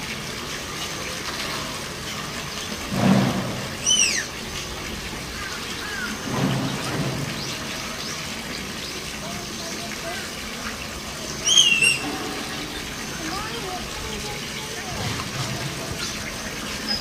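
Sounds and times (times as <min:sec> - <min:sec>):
rain-like hiss: 0:00.0 - 0:17.0
tapir squealing: 0:11.4 - 0:13.0.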